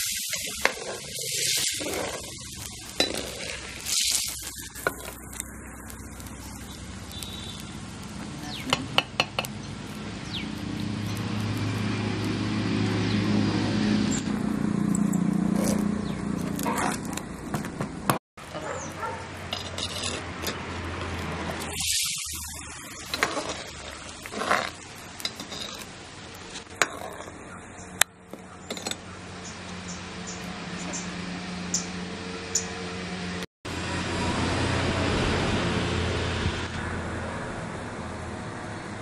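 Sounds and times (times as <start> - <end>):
ladle clinking and scraping pot: 0.3 - 5.4, 19.4 - 20.7, 22.9 - 27.4, 28.3 - 29.0.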